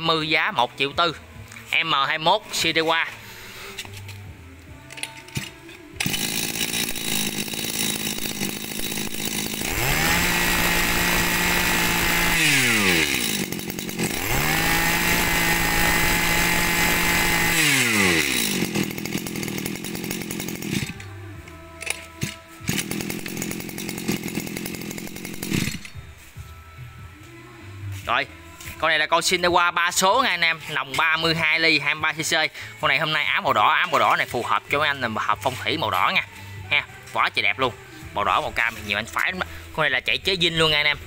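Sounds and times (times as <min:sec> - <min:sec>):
brush cutter pull-start: 0:04.9 - 0:26.0
brush cutter engine idling: 0:05.0 - 0:26.0
brush cutter engine revving: 0:05.4 - 0:21.2, 0:21.8 - 0:26.0.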